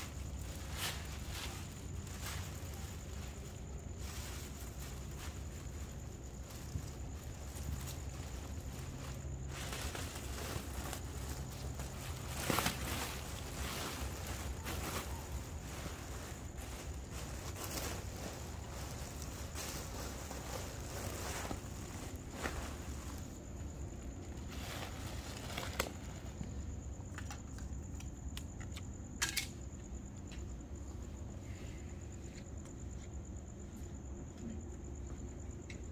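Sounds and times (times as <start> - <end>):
plastic trash bag rustling: 0.0 - 26.4.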